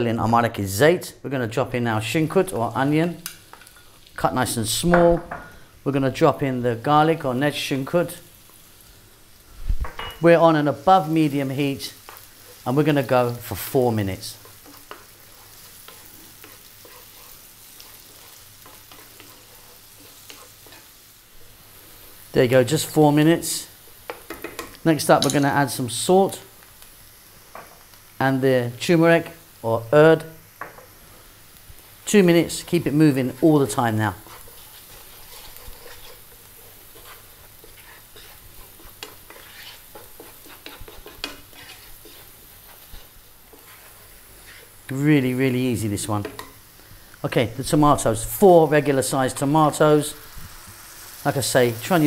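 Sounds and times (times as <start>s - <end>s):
onion sizzling in pan: 1.5s - 52.0s
wooden spoon scraping pan: 14.4s - 21.0s, 32.5s - 45.0s.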